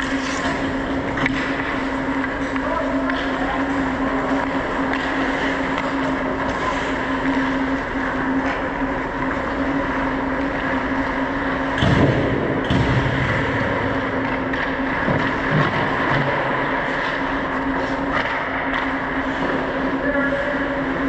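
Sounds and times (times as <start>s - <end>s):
skates scraping on ice: 0.0s - 13.0s
constant hum: 0.0s - 21.0s.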